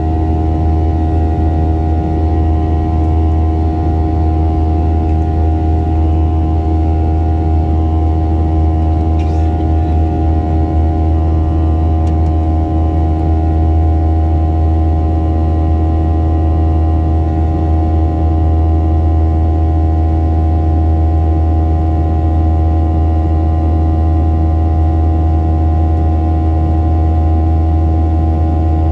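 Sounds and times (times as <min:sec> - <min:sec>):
whining tones: 0:00.0 - 0:14.0
jet engine drone in cabin: 0:00.0 - 0:28.9.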